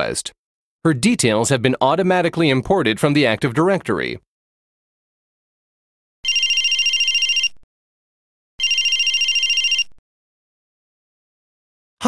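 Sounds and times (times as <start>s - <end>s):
mobile phone ringing: 6.2s - 7.6s, 8.6s - 10.0s.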